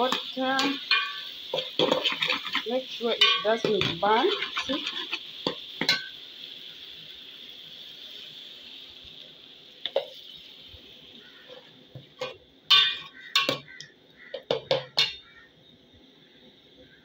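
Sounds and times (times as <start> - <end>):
vegetables sizzling in a pot: 0.0 - 17.0
metal spoon knocking on pot: 12.7 - 13.7, 14.4 - 15.2.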